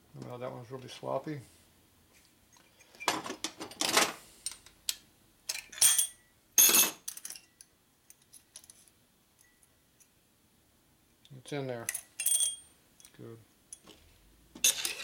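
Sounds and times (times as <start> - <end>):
metal tools clattering on workbench: 5.5 - 7.5, 11.9 - 12.6, 14.6 - 15.0.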